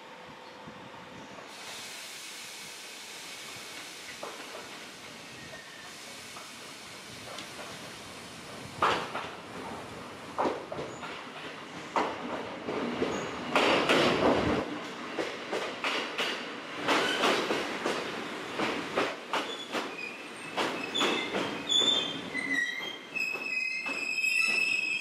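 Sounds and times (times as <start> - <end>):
train wheels clacking over rail joints: 10.4 - 14.6, 15.2 - 22.0
high wheel squeal: 20.8 - 25.0.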